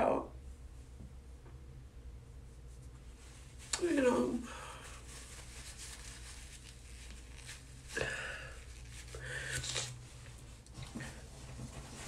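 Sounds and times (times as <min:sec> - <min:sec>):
tissue rustling: 0:02.7 - 0:12.0.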